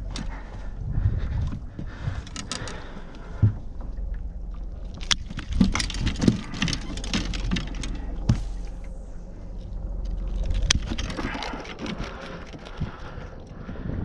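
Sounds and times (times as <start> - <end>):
low steady rumble: 0.0 - 14.0.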